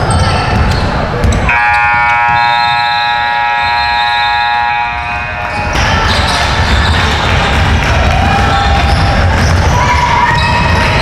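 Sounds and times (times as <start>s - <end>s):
scoreboard horn blaring: 1.5s - 6.3s.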